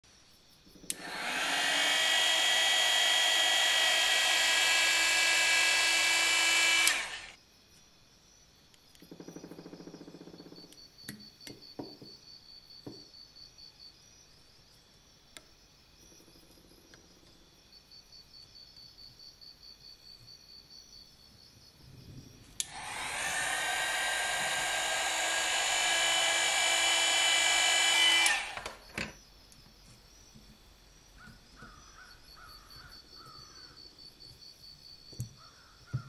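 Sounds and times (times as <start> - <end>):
rotary tool whining: 0.8 - 7.4, 22.6 - 29.2.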